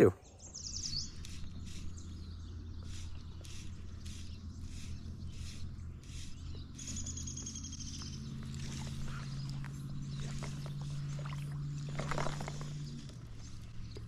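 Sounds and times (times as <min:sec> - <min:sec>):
songbird trilling: 0:00.1 - 0:14.0
creek water running: 0:01.1 - 0:14.0.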